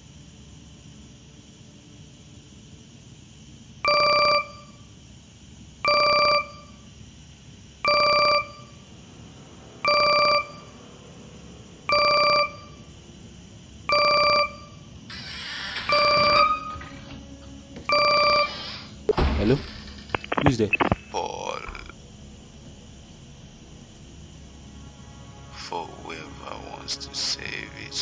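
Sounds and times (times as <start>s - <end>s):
phone ringing: 15.9s - 16.9s, 17.9s - 18.6s.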